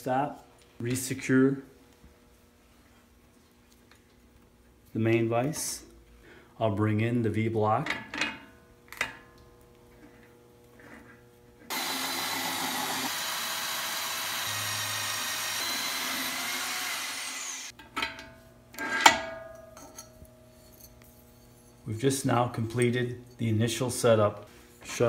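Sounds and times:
hole saw cutting metal tube: 0:11.7 - 0:17.7.

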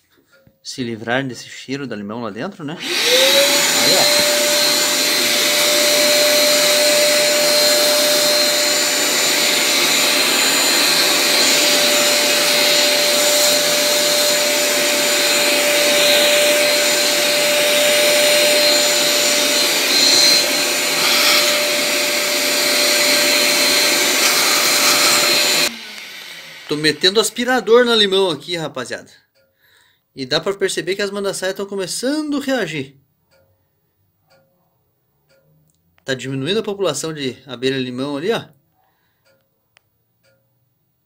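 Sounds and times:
vacuum cleaner running: 0:02.8 - 0:28.4.

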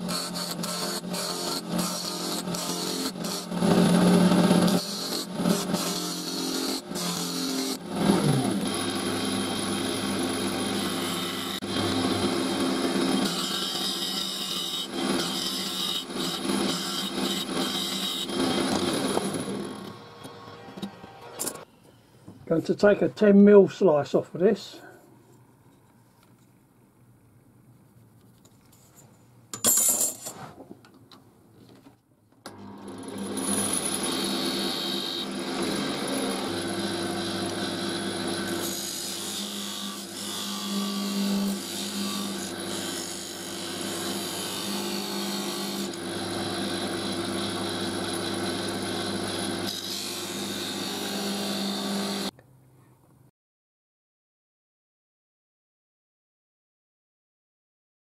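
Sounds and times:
wood lathe motor hum: 0:00.0 - 0:20.0, 0:32.5 - 0:52.3.

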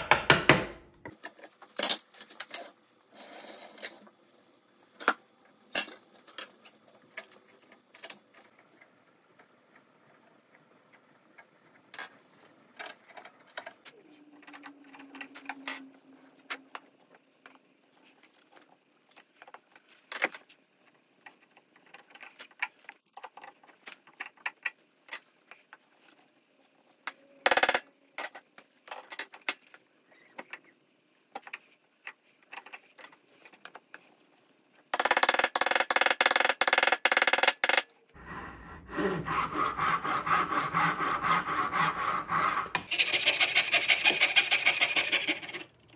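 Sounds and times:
tools and boards knocking on workbench: 0:00.0 - 0:01.2.

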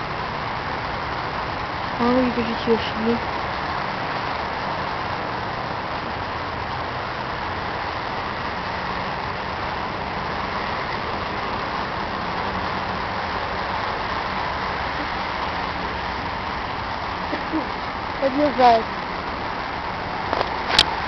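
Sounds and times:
low engine hum: 0:00.0 - 0:21.0.

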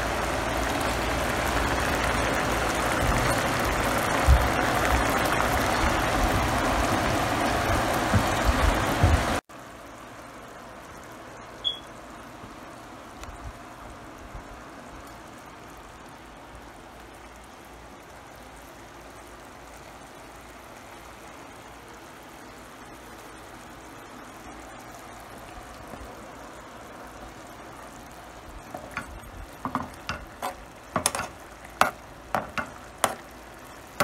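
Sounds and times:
sauce bubbling and sizzling: 0:00.0 - 0:34.0
high chirp: 0:11.6 - 0:11.9.

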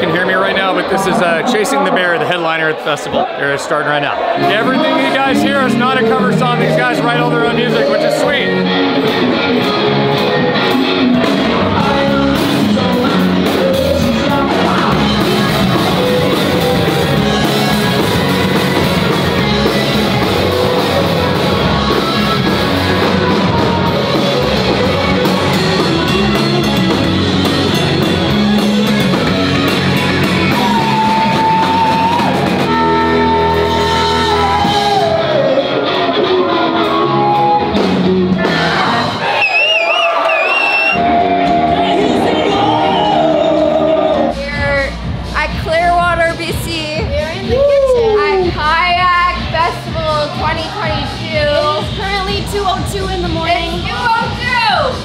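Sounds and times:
drums: 0:00.0 - 0:55.0
keyboard: 0:04.1 - 0:39.4
electric guitar: 0:04.2 - 0:39.3, 0:40.7 - 0:44.4
person singing: 0:10.4 - 0:18.9, 0:30.3 - 0:37.7.

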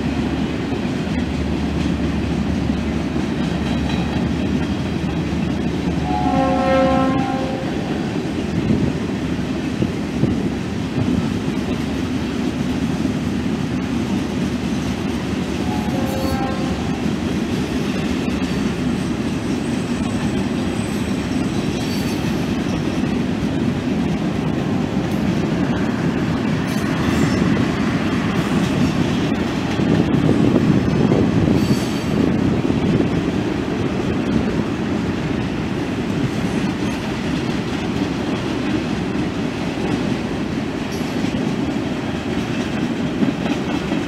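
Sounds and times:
freight train wheels rumbling: 0:00.0 - 0:44.0
wheel squeals: 0:18.5 - 0:23.1.

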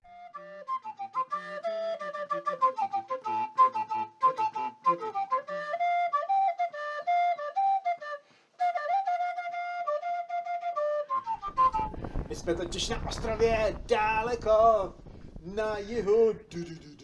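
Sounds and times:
flute music: 0:00.0 - 0:13.1.

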